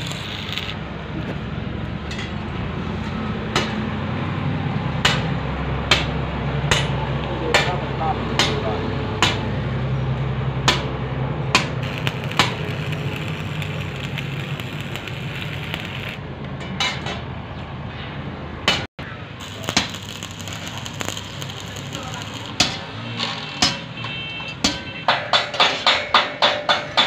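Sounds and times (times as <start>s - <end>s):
welding arc crackle: 0.0s - 0.8s, 11.8s - 16.2s, 19.4s - 23.8s.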